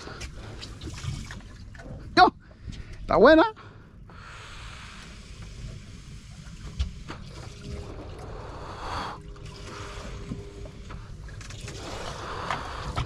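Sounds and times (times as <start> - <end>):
water against boat hull: 0.0 - 2.9.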